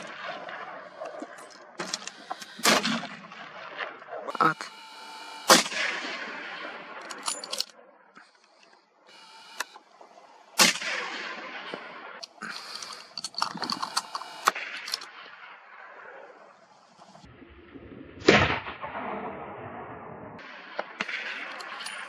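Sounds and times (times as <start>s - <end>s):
rifle shot echoing: 0.0s - 4.5s, 5.5s - 7.5s, 9.6s - 12.2s, 20.4s - 22.0s
metallic clicks and rattles: 7.0s - 7.7s, 12.2s - 15.1s, 21.4s - 22.0s.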